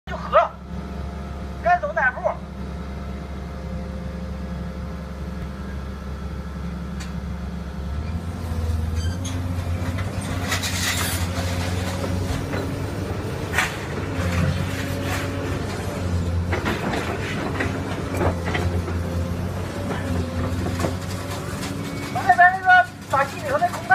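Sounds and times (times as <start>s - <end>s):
hydraulic power unit humming: 0.1s - 23.9s
scrap metal rattling and clanking: 8.9s - 23.9s.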